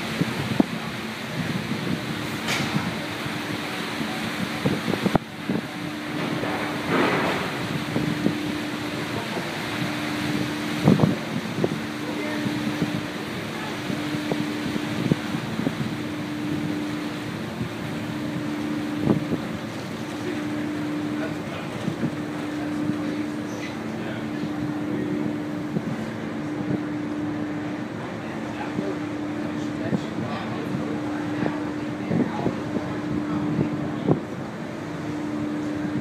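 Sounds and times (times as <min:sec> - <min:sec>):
low machinery hum: 0:00.0 - 0:36.0
wind buffeting microphone: 0:00.0 - 0:36.0.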